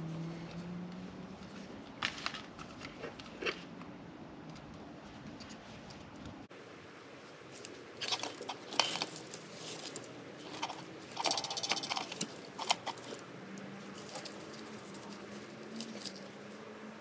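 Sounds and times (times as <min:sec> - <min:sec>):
hand tools clicking and snipping: 0:07.6 - 0:16.6.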